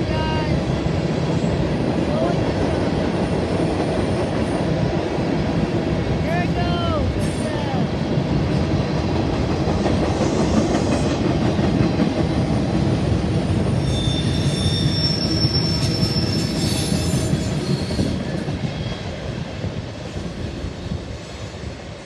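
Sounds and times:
train wheels rumbling over bridge: 0.0s - 22.0s
high wheel squeal: 13.7s - 19.0s.

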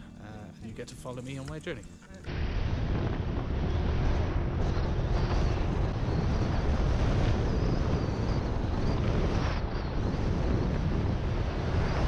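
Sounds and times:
road noise: 2.3s - 12.0s
wind noise on microphone: 2.3s - 12.0s
scooter engine running: 3.0s - 12.0s.

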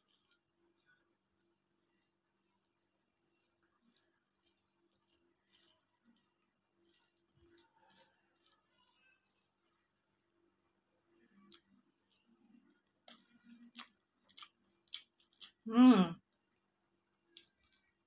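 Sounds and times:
fingers mashing food wet squishes: 0.0s - 10.4s.

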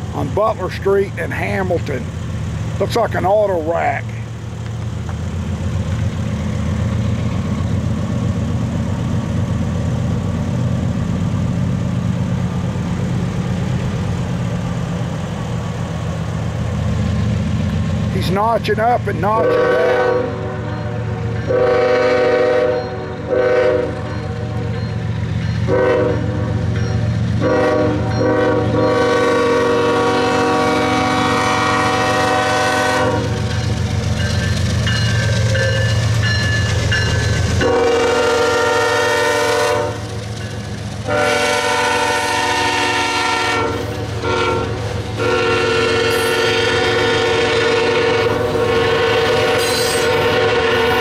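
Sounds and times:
diesel engine rumble: 0.0s - 43.2s
locomotive air horn blasts: 19.4s - 24.8s, 25.7s - 26.6s, 27.4s - 33.4s, 37.6s - 40.0s, 41.1s - 51.0s
train wheels clacking on rail joints: 33.2s - 37.8s, 39.9s - 41.1s.

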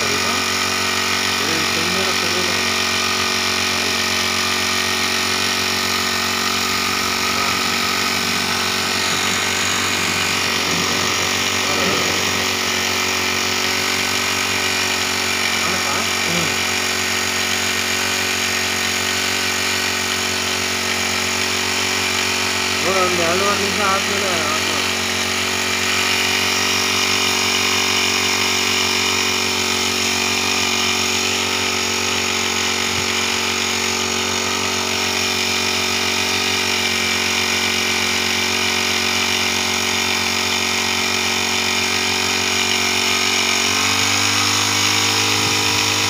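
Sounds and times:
small engine running: 0.0s - 46.0s
water spraying: 0.0s - 46.0s.

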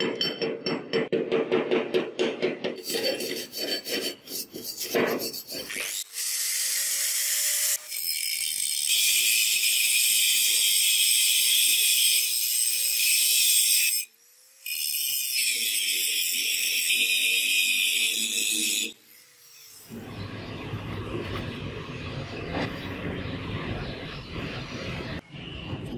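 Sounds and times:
hand tool scraping steel: 2.7s - 6.1s
angle grinder grinding steel: 2.8s - 20.2s.

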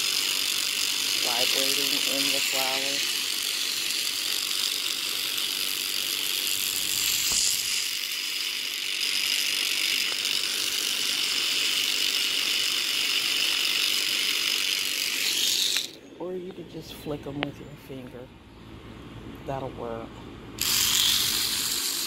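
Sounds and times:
electric toothbrush buzzing: 0.0s - 16.0s, 20.6s - 22.0s.

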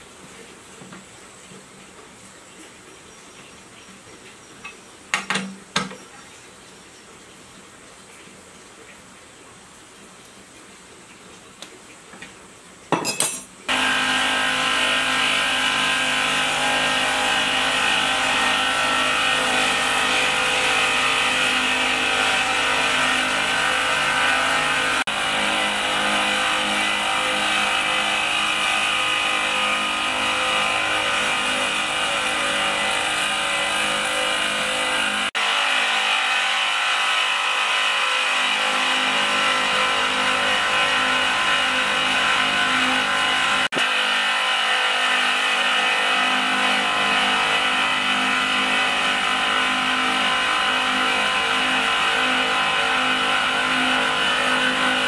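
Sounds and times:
wet-grinding mill motor whine: 13.7s - 55.0s.

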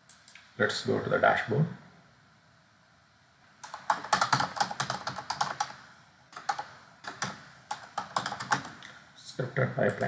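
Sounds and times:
computer keyboard typing: 3.6s - 8.9s.

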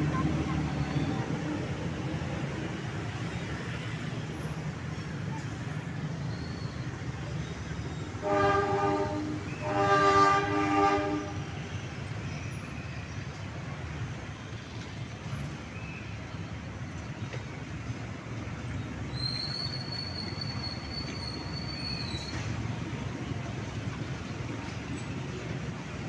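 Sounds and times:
locomotive engine rumble: 0.0s - 26.0s
locomotive horn blasts: 8.2s - 11.7s.

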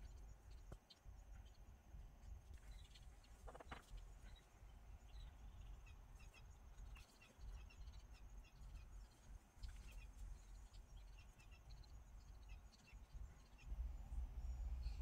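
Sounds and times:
faint bird chirps: 0.0s - 15.0s
faint rustle: 2.2s - 4.6s.

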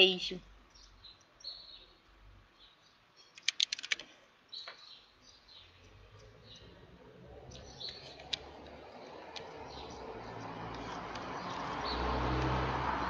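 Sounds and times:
small birds chirping: 0.0s - 13.0s
phone being handled: 3.4s - 4.1s.

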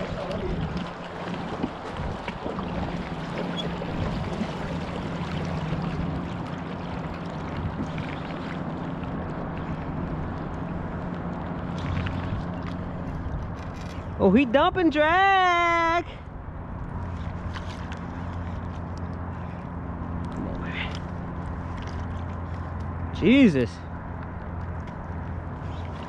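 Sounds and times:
low even hum: 0.0s - 14.7s
wind and water noise: 0.0s - 26.0s.

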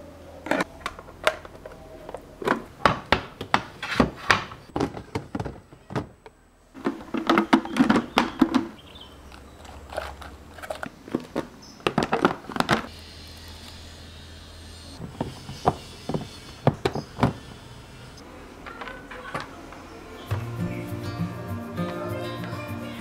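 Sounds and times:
plastic containers clacking: 0.4s - 12.9s.

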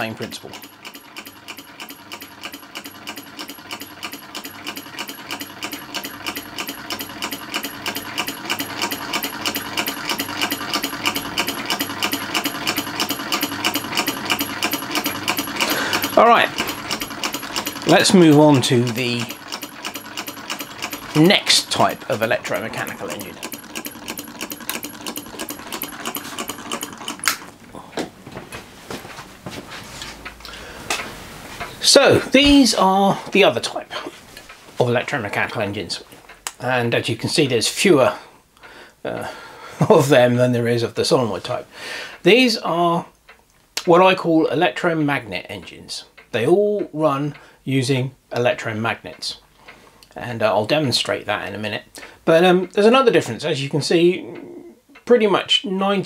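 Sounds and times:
solenoid engines clicking: 0.0s - 28.0s.

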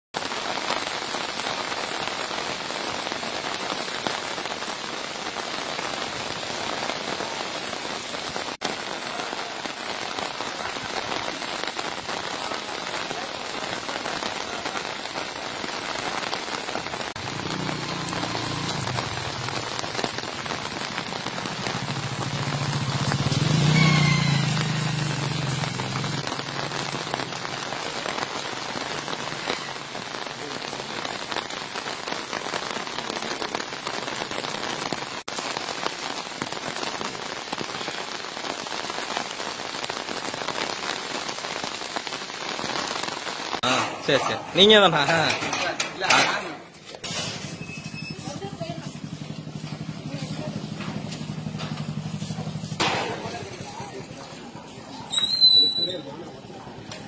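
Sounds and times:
steady rain falling: 0.1s - 57.0s
motor vehicle passing: 17.3s - 19.8s, 21.4s - 26.6s, 48.7s - 54.4s.

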